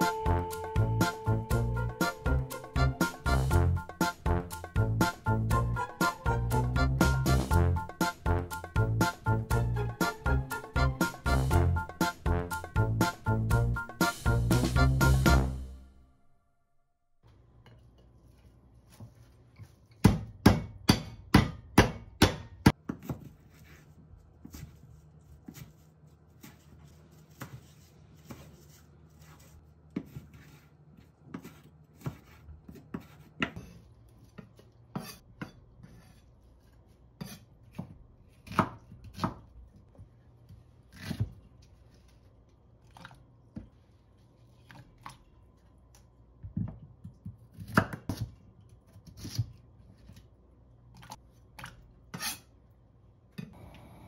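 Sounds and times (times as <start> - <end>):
knife chopping on wooden board: 20.0 - 23.3, 31.3 - 33.8, 37.2 - 39.4, 47.2 - 48.3.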